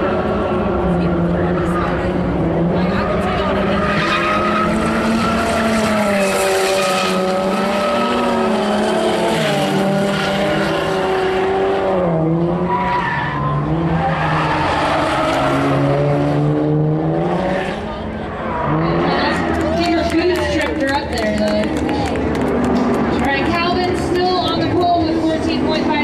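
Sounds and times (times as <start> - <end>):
car engine revving high: 0.0 - 26.0
tyres squealing and skidding: 1.0 - 11.7, 12.4 - 16.3.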